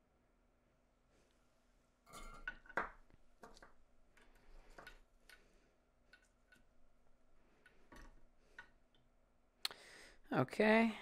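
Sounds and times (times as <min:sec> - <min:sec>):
small metal parts clicking: 0:06.1 - 0:06.8.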